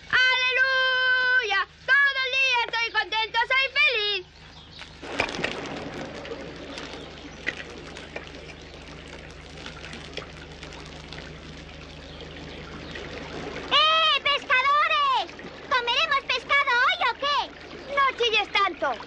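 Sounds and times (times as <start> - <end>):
campfire crackling and popping: 4.3 - 17.0.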